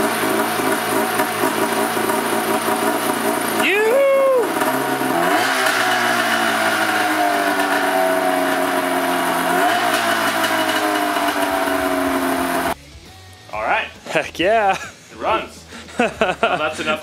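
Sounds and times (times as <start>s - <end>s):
two-stroke engine running: 0.0s - 12.8s.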